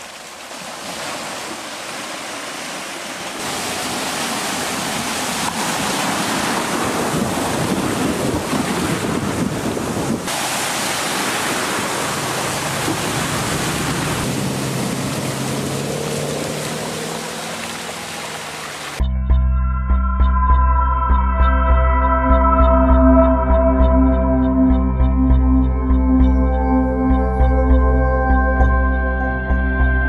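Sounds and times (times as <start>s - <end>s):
floodwater splashing and surging: 0.0s - 19.0s
wind buffeting microphone: 3.4s - 18.9s.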